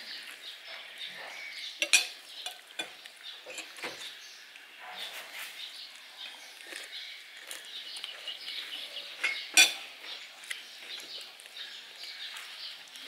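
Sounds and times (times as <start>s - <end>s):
spoons clinking on ceramic plates: 1.8s - 4.1s, 9.2s - 9.9s.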